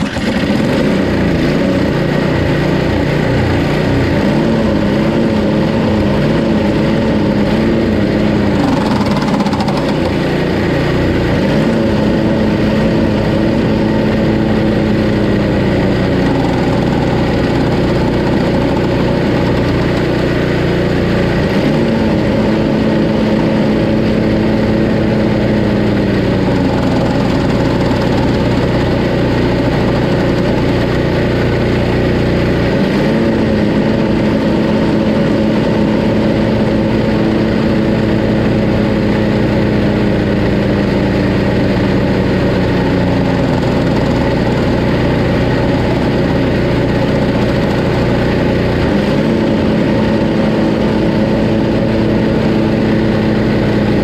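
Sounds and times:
snowblower engine running: 0.0 - 54.0
brake bar noise on pulley: 8.5 - 10.3, 16.0 - 20.7, 26.3 - 31.7.

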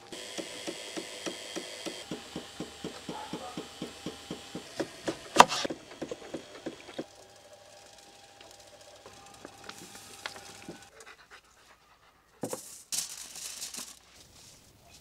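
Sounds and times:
knife chopping on wooden board: 0.9 - 7.0
rapid even knocking: 0.9 - 7.1.

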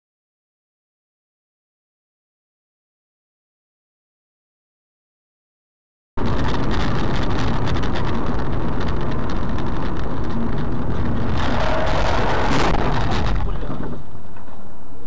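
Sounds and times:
road and wind noise inside car: 6.2 - 15.0.

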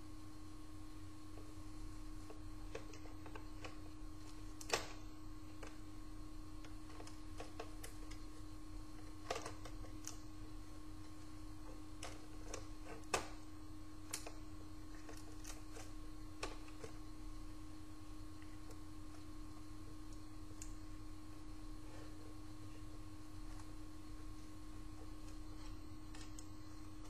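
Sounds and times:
electrical hum: 0.0 - 27.0.

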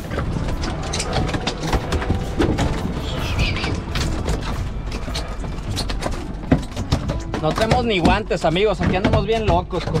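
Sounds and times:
knocks and clatter on deck: 5.4 - 10.0.

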